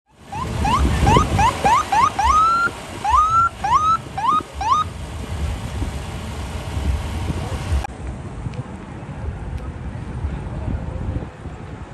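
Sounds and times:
police siren whooping: 0:00.3 - 0:04.9.

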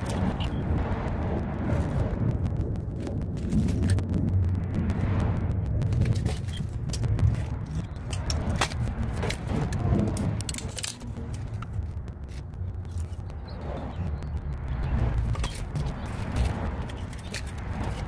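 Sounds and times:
steady low rumble: 0:00.0 - 0:18.0.

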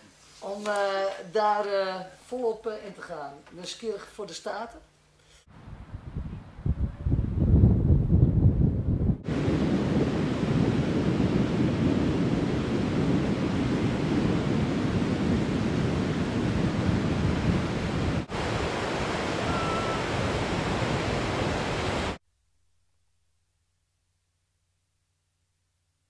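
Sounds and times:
wind on microphone: 0:05.5 - 0:22.2
surf breaking on beach: 0:09.2 - 0:22.2.

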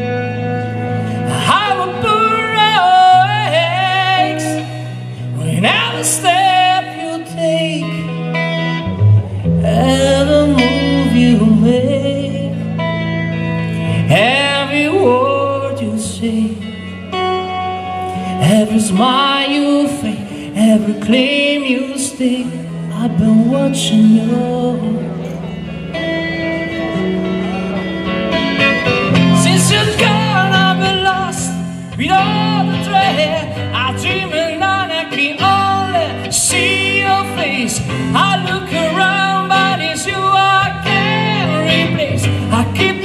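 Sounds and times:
guitar: 0:00.0 - 0:43.0
person singing: 0:00.0 - 0:43.0
long held bass notes: 0:22.5 - 0:43.0.

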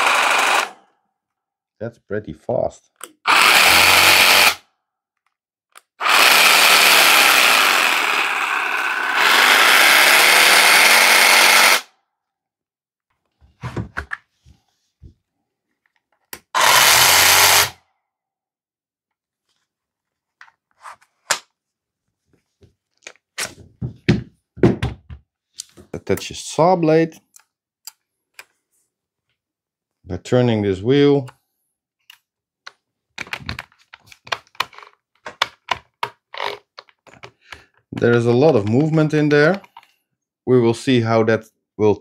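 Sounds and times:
power saw running: 0:00.0 - 0:00.8, 0:03.3 - 0:04.6, 0:06.0 - 0:11.9, 0:16.6 - 0:17.8.

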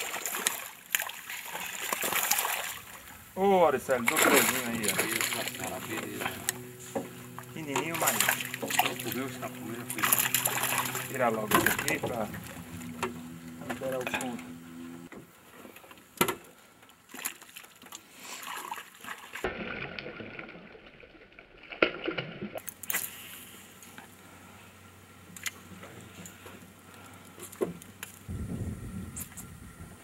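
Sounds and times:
water lapping around boat: 0:00.0 - 0:28.5
knocks and clicks from boat: 0:04.1 - 0:16.5.

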